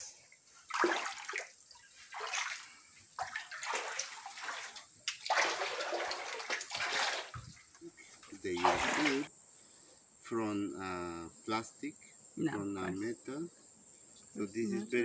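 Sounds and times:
water splashing and sloshing: 0.0 - 9.3.

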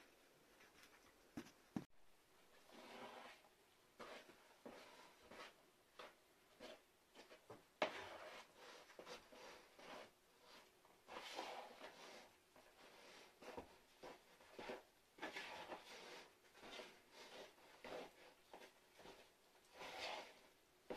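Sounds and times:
hands kneading dough: 2.6 - 20.9.

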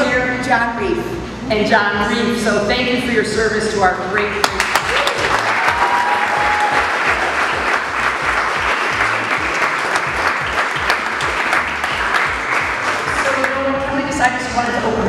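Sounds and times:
crowd applauding: 4.6 - 13.9.

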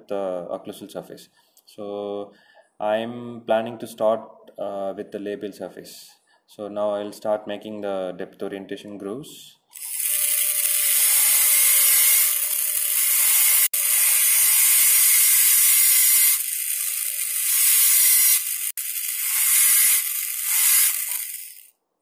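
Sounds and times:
dental drill whine: 9.8 - 21.7.

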